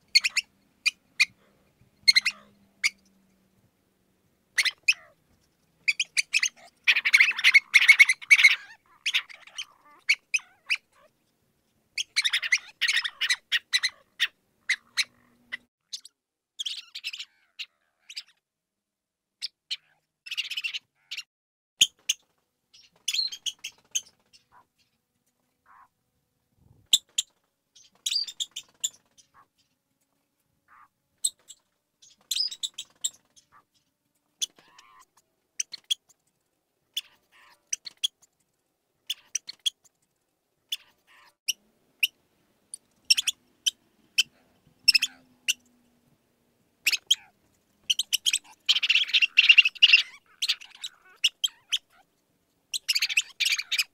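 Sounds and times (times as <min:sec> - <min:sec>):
mouse squeaking: 0:00.1 - 0:01.4, 0:02.0 - 0:03.1, 0:04.6 - 0:05.2, 0:05.8 - 0:11.1, 0:12.0 - 0:18.4, 0:19.4 - 0:24.7, 0:25.7 - 0:25.9, 0:26.9 - 0:29.7, 0:30.7 - 0:33.8, 0:34.4 - 0:36.2, 0:36.9 - 0:38.4, 0:39.0 - 0:40.0, 0:40.7 - 0:45.7, 0:46.8 - 0:53.9.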